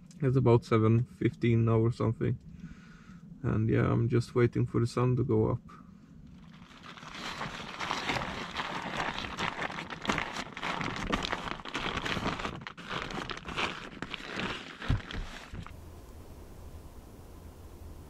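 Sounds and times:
fabric rustling and crinkling: 6.3 - 15.8.

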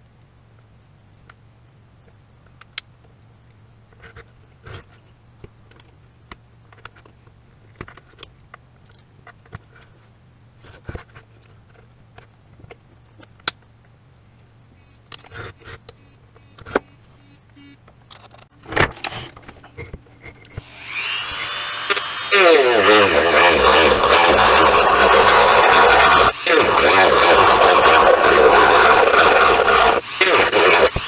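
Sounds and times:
low steady hum: 0.0 - 22.2.

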